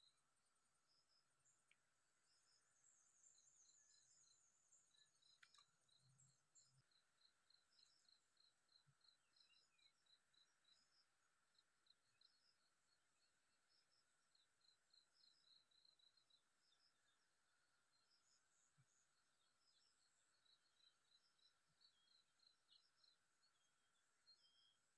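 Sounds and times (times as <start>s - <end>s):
small high chirps: 3.8s - 6.1s.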